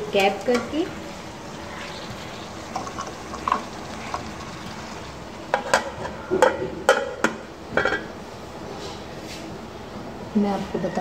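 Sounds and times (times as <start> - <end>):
food sizzling in a pot: 0.0 - 6.3.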